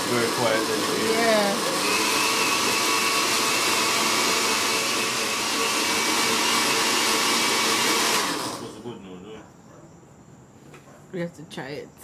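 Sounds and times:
blender motor whirring: 0.0 - 8.8.

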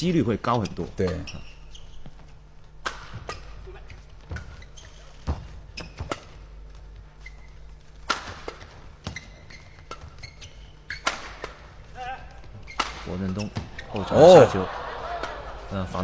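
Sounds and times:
shoe squeaks: 0.5 - 14.5
rackets hitting shuttlecock: 2.8 - 3.6, 8.0 - 9.1, 10.9 - 14.1.

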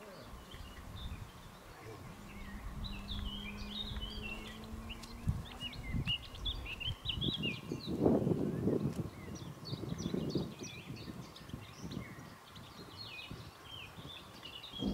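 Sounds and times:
small birds chirping: 0.0 - 14.9
faint low hum: 0.1 - 7.0
low outdoor rumble: 0.1 - 7.3.

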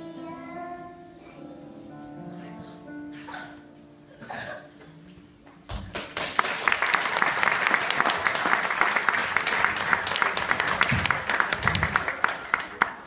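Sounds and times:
audience applause: 5.9 - 13.0.

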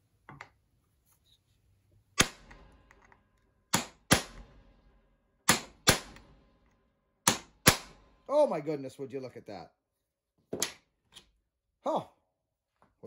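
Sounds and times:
hammer striking steel punch: 3.7 - 4.5, 5.5 - 6.3, 7.2 - 8.0.

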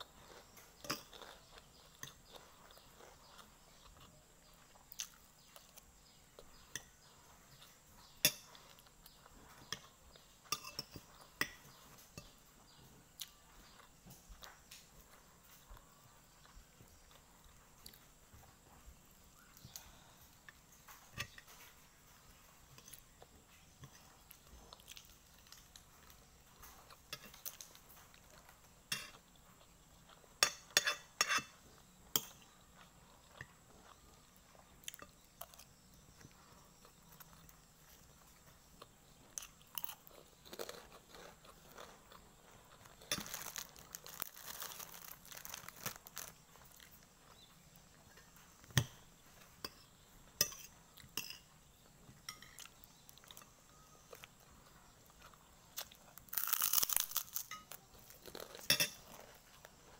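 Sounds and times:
chewing and crunching: 0.0 - 59.9
cutlery clinking on a plate: 8.2 - 8.8, 9.5 - 12.4, 28.9 - 29.3, 30.4 - 31.6, 49.6 - 51.6, 52.2 - 53.6, 58.6 - 59.3.

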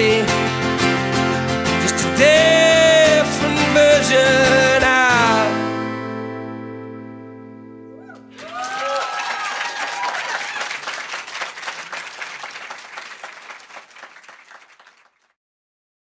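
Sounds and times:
whoops: 7.9 - 11.0
audience applauding and cheering: 8.0 - 15.3.

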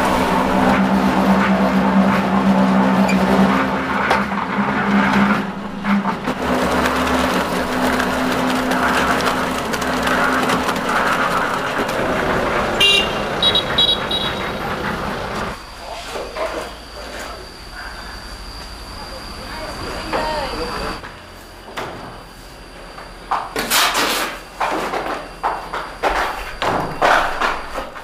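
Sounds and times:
engine running steadily: 0.0 - 21.8.

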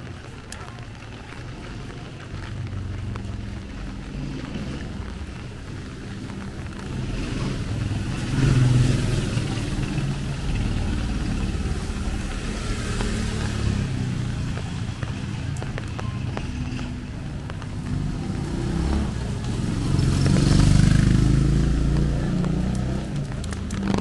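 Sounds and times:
vehicle engine rumbling: 0.0 - 24.0.

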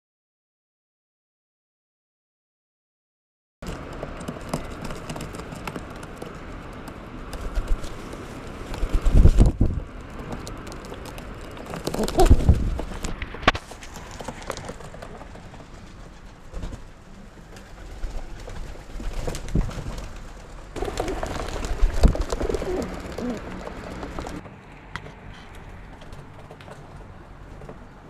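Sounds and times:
pigeons cooing: 11.6 - 12.8, 20.8 - 24.4.

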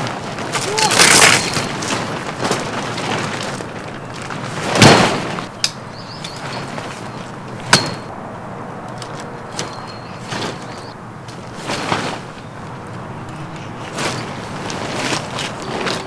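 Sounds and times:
tent fabric rustling: 0.0 - 7.8, 9.1 - 16.0.

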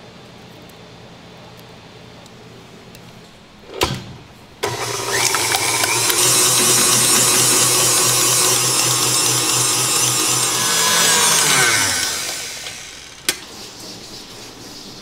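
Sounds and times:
stand mixer motor whirring: 4.6 - 13.4.

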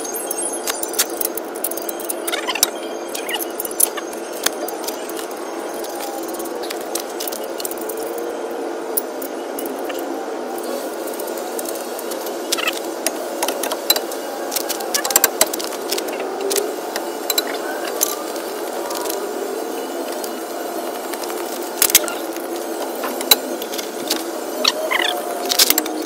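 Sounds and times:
steady background hum: 0.0 - 26.0.

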